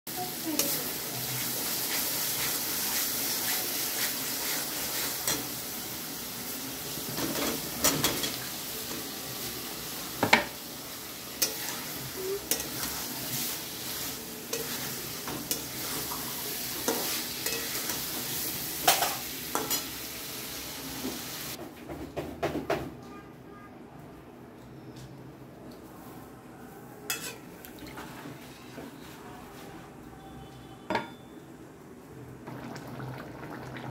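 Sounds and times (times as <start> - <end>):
masala sizzling in a pan: 0.1 - 21.6, 26.0 - 29.9
metal spatula scraping a pan: 11.4 - 19.9, 27.1 - 27.5.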